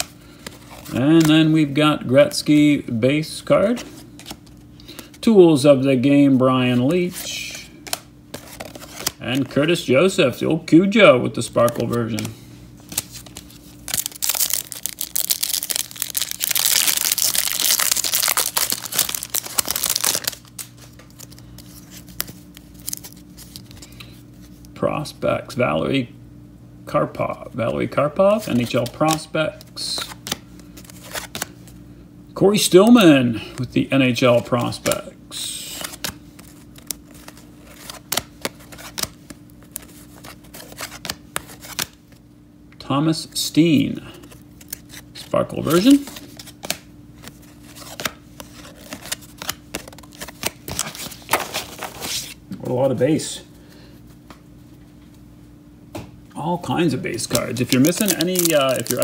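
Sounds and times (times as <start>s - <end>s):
cards being flipped through: 0.0s - 1.6s, 3.7s - 5.2s, 6.7s - 9.7s, 11.5s - 24.8s, 28.4s - 31.8s, 34.4s - 35.0s, 35.6s - 42.2s, 44.1s - 52.9s, 57.1s - 59.0s
foil wrapper tearing and crinkling: 13.0s - 21.4s, 57.2s - 59.0s.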